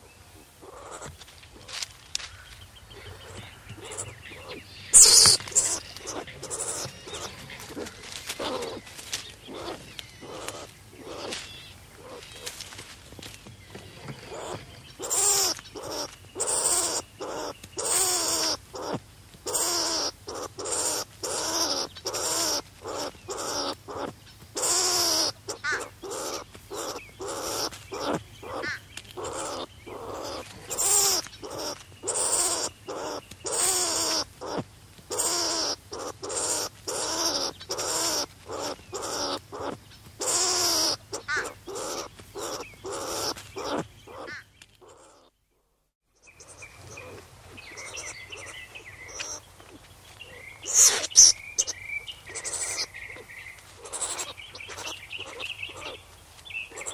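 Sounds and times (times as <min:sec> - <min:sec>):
skunk calling: 0:00.0 - 0:12.7, 0:13.7 - 0:56.9.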